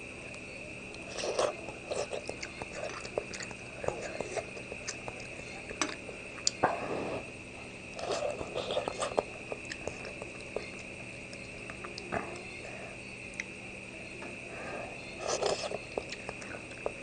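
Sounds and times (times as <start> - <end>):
person chewing: 1.0 - 6.7, 7.9 - 12.5, 15.2 - 17.0.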